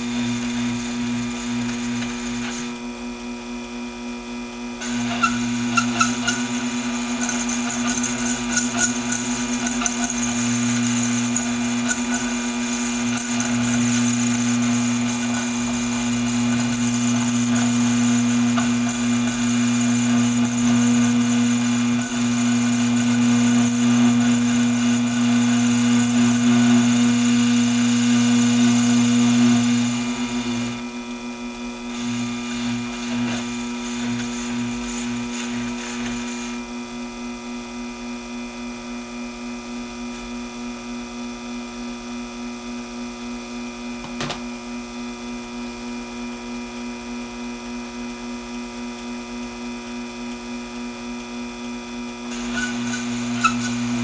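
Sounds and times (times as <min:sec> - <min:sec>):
lathe cutting steel: 0:00.0 - 0:02.8, 0:04.8 - 0:30.9, 0:31.8 - 0:36.7, 0:52.2 - 0:54.0
lathe running with faint pulsing: 0:00.0 - 0:54.0.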